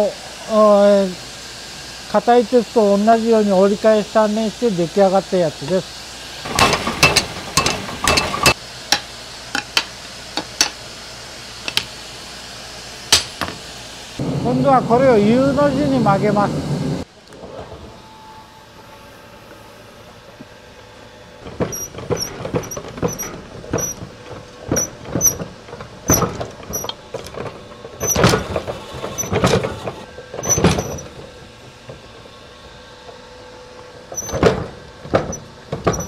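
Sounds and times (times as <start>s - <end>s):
power hammer striking hot steel: 6.4s - 10.8s, 13.1s - 16.0s.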